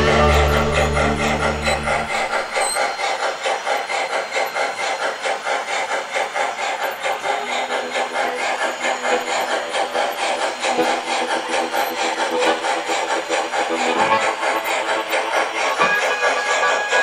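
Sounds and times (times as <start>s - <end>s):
model steam locomotive chuffing: 0.0s - 17.0s.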